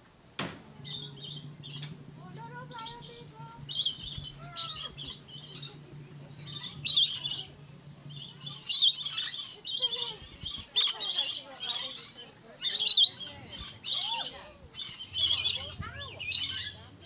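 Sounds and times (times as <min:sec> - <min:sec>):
low steady hum: 0:00.0 - 0:17.0
lorikeets screeching: 0:00.8 - 0:17.0.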